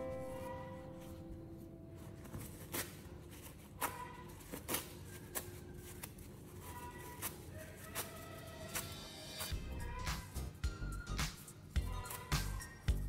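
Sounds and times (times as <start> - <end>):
acoustic guitar music: 0.0 - 2.6.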